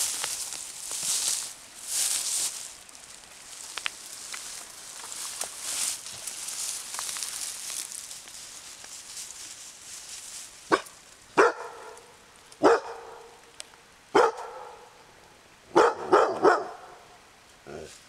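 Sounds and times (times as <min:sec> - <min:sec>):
dog barking: 0:10.7 - 0:13.4, 0:14.1 - 0:14.9, 0:15.7 - 0:17.0.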